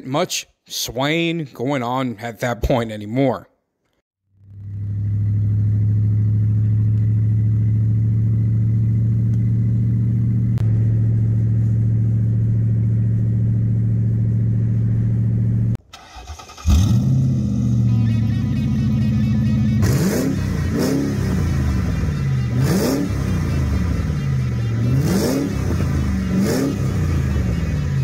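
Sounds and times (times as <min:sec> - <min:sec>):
louder engine sound: 0:04.3 - 0:28.0
car engine droning: 0:04.4 - 0:28.0.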